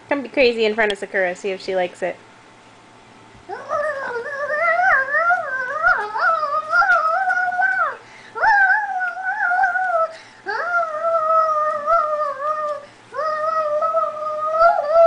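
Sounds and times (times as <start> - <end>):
child making wavering calls: 3.5 - 15.0.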